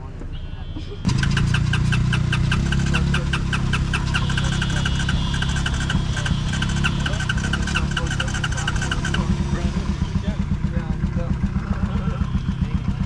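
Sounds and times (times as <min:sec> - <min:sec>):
engine churning with ticking beats: 0:00.0 - 0:13.0.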